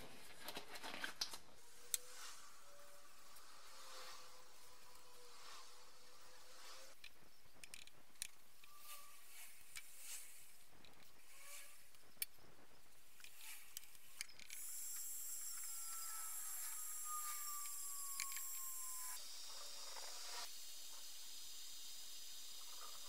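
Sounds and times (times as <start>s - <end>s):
paintbrush strokes hissing: 1.7s - 7.0s, 8.8s - 10.7s
faint high whistle: 14.7s - 19.4s.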